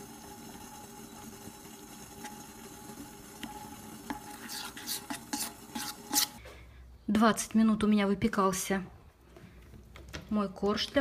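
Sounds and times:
spatula stirring in bowl: 0.4 - 6.4.

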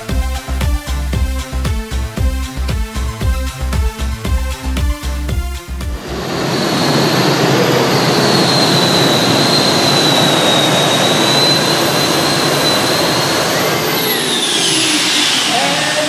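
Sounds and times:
high turbine whine: 5.8 - 16.0
tractor engine roaring: 5.9 - 16.0.

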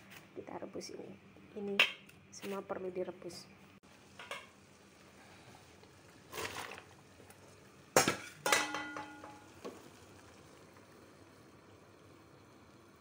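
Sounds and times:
pot scraping on stove: 6.3 - 6.9
metal pot knock: 8.0 - 9.4.

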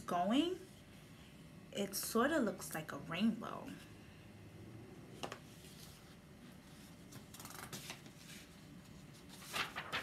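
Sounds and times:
paper page rustling: 5.4 - 10.0.

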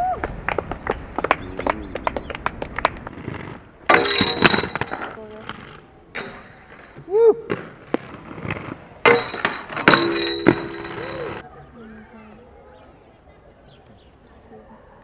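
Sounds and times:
skateboard wheels rolling: 0.0 - 11.4
skateboard clacks: 0.2 - 11.4.

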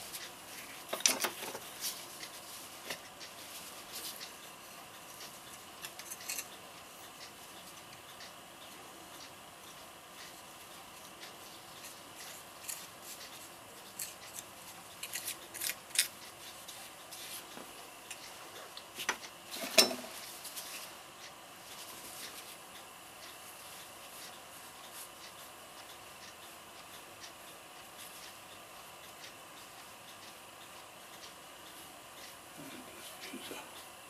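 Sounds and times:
small tools clicking and tapping: 0.9 - 2.3, 5.8 - 6.6.

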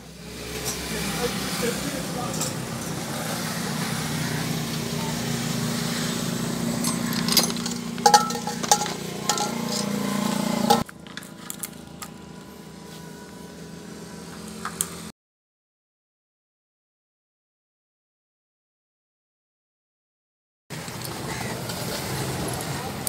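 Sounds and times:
metal tools clinking: 2.2 - 3.3, 6.7 - 12.2.

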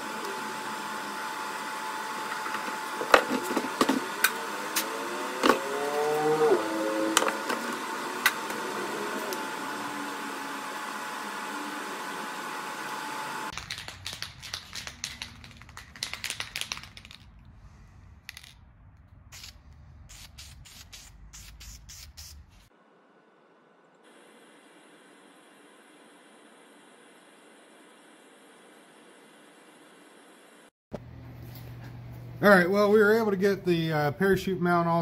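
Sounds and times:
sharp clicks and taps: 13.5 - 17.3
faint hum: 13.6 - 35.0.

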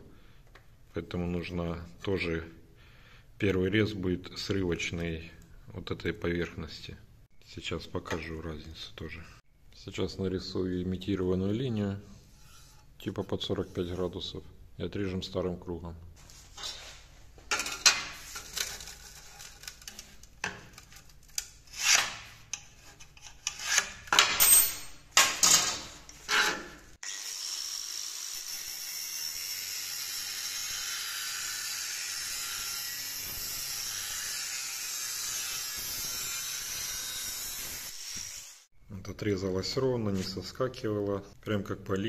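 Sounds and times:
angle grinder cutting metal: 26.3 - 38.7.

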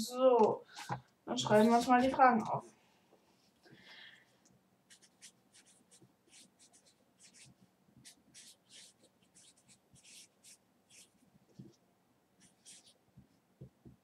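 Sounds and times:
pen scratching on paper: 4.9 - 11.2, 12.4 - 13.0.

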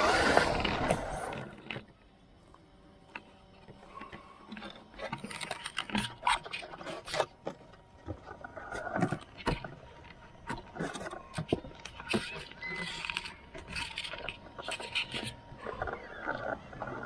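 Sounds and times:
hands handling plastic body shell: 3.2 - 16.1.

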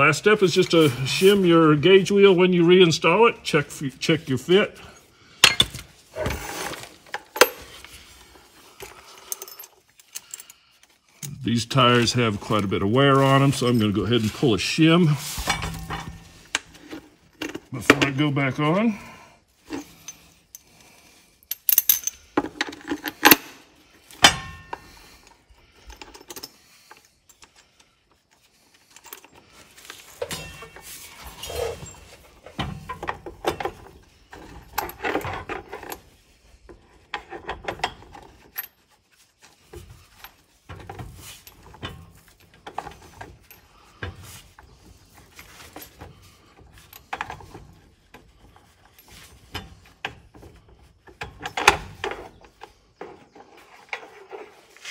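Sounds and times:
metal parts clinking and rattling: 5.0 - 11.4, 19.6 - 54.9.

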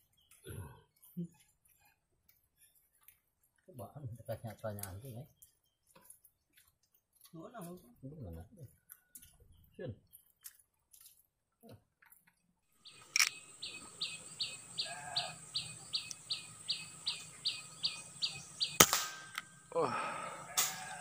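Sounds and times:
bird chirping: 0.0 - 1.9, 4.2 - 6.4, 12.7 - 21.0
air rifle shot: 18.6 - 19.6, 20.5 - 20.9.

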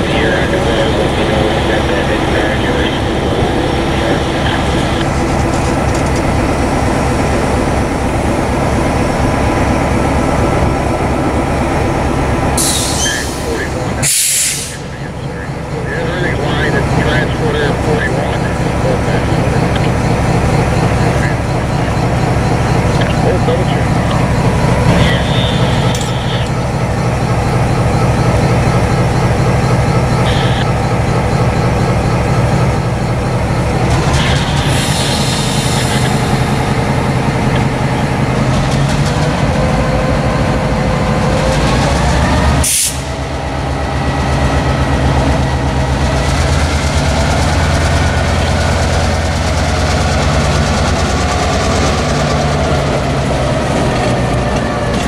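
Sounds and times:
diesel locomotive idling: 0.0 - 55.0
locomotive engine revving: 0.0 - 55.0
air hiss bursts: 14.0 - 14.8.

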